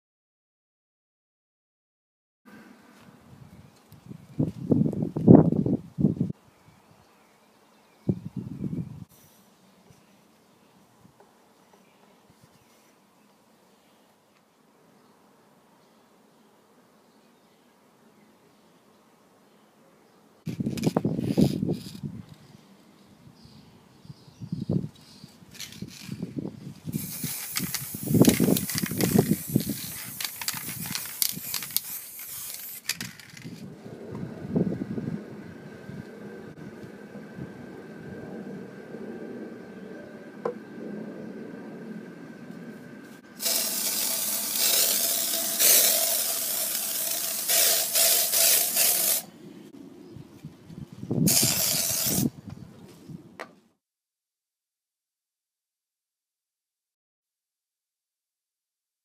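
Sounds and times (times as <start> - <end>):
aerosol spray can hissing: 27.0 - 33.6, 43.4 - 49.3, 51.3 - 52.3
low rumbling: 33.6 - 43.4.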